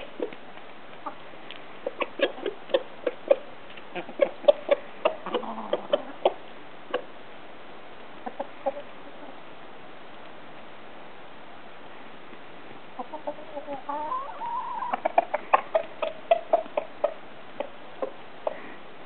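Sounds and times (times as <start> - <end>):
chickens clucking: 0.0 - 7.2, 8.2 - 9.5, 12.9 - 18.8.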